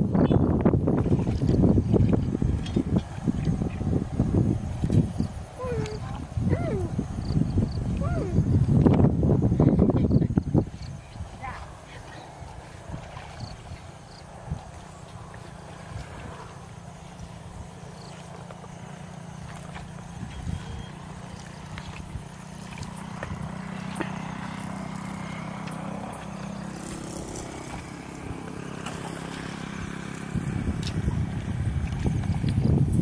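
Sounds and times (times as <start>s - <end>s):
low motor drone: 0.0s - 33.0s
hoe churning through mud: 10.6s - 32.9s.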